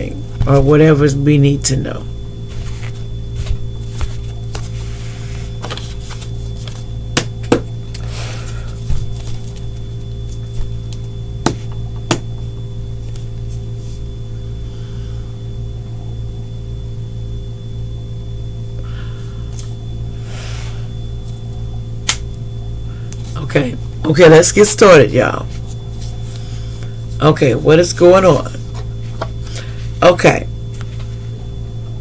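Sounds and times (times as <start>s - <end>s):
electrical hum: 0.0s - 32.0s
cards sliding rustle: 2.5s - 6.8s, 7.9s - 9.7s.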